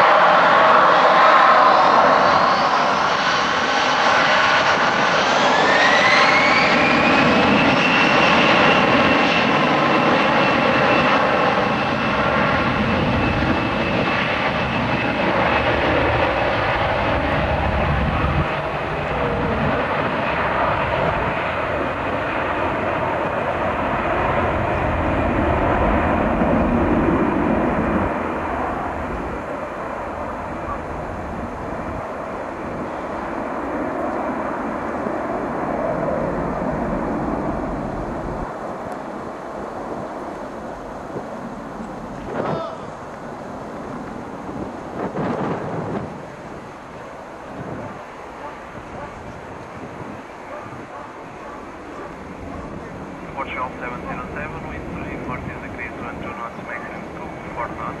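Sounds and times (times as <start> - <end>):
jet engines whining and roaring: 0.0 - 58.0.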